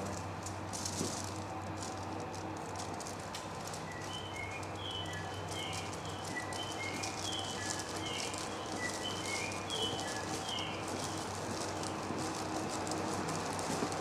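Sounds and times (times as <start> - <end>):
low electrical hum: 0.0 - 14.0
recorded bird-like chirps: 3.9 - 11.2.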